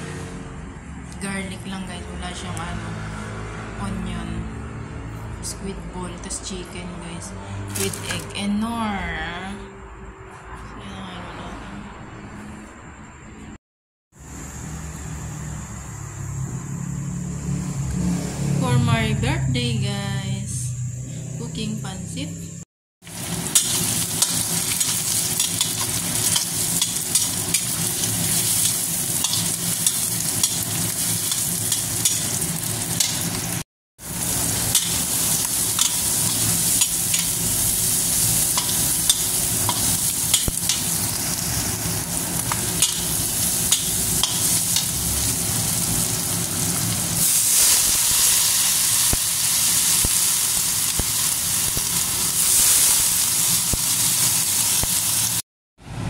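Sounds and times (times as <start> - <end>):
food sizzling in a wok: 14.1 - 17.3, 23.0 - 55.4
metal spatula scraping a pan: 23.4 - 33.4.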